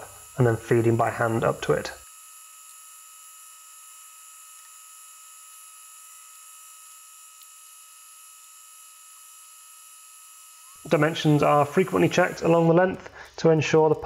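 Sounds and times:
metal lathe whining: 0:00.0 - 0:03.8, 0:07.1 - 0:12.8.

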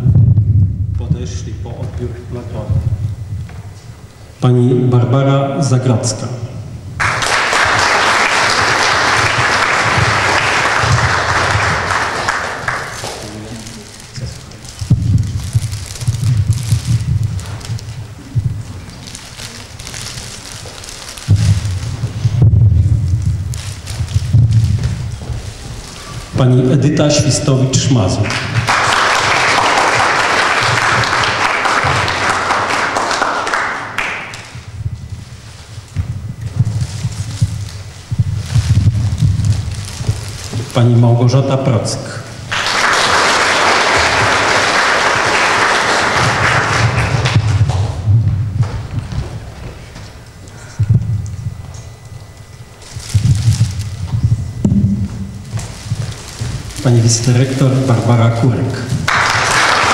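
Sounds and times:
audience applauding: 0:07.0 - 0:14.8, 0:27.2 - 0:34.6, 0:42.1 - 0:48.1, 0:59.0 - 0:59.9.

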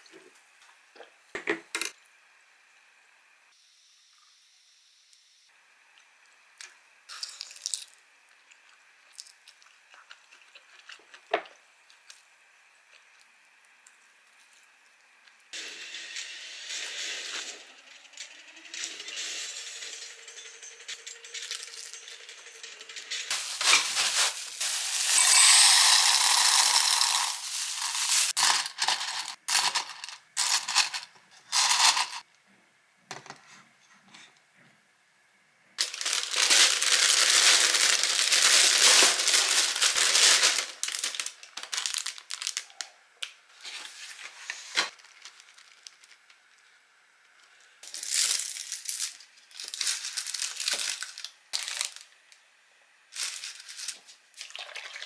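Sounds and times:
packaging crinkling and rustling: 0:23.3 - 0:25.2, 0:25.9 - 0:32.2, 0:35.8 - 0:42.9, 0:43.5 - 0:46.5, 0:47.8 - 0:52.1, 0:53.1 - 0:54.2.

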